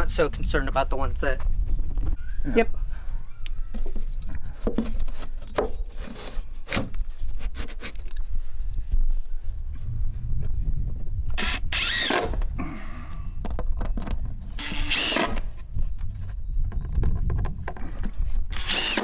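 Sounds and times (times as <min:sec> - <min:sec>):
steady low rumble: 0:08.8 - 0:11.4
cordless driver motor whine: 0:11.4 - 0:12.4.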